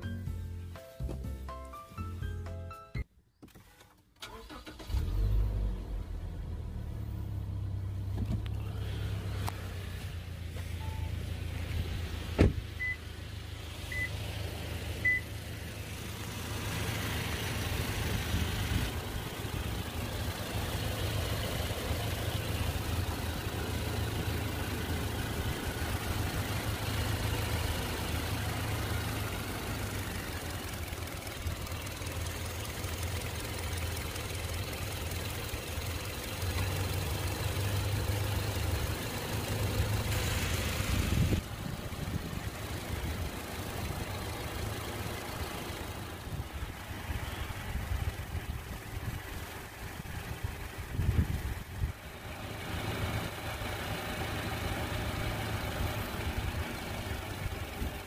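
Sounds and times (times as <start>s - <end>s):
car engine idling: 3.7s - 58.0s
short beeps: 10.8s - 11.2s.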